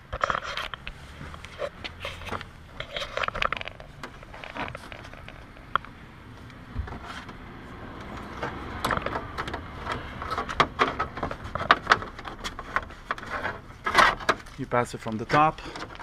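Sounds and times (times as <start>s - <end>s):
rustling and scraping behind panels: 0.0s - 16.0s.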